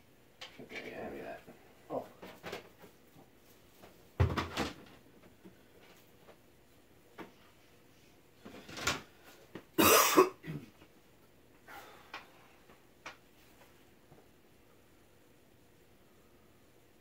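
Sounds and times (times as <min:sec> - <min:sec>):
ceiling fan humming: 0:00.0 - 0:17.0
person coughing: 0:09.8 - 0:10.8.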